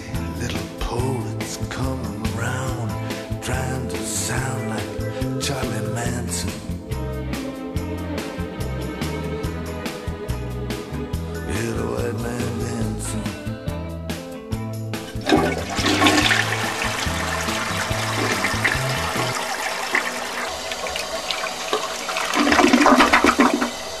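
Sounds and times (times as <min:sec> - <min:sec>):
background music: 0:00.0 - 0:24.0
toilet flushing: 0:15.0 - 0:24.0.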